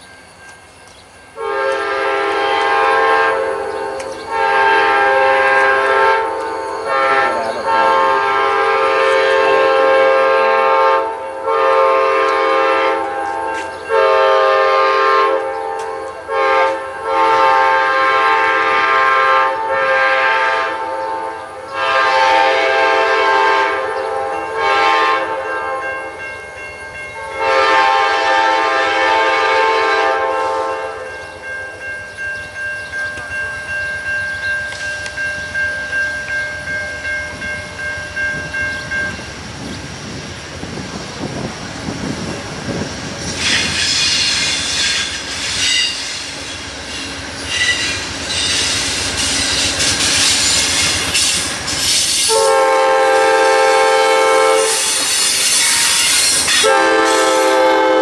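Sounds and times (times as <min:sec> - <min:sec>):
locomotive air horn blasts: 0:01.4 - 0:26.0, 0:27.2 - 0:31.1, 0:50.5 - 0:58.0.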